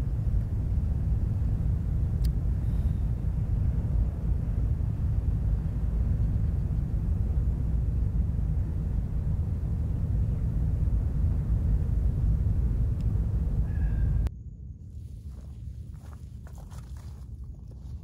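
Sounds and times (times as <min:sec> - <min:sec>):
wind buffeting microphone: 0:00.0 - 0:14.3.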